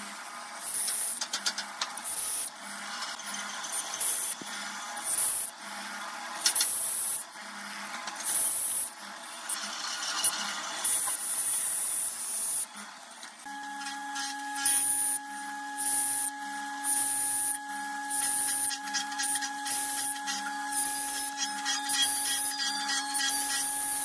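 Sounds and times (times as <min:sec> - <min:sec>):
machine motor whine: 0:13.4 - 0:24.0.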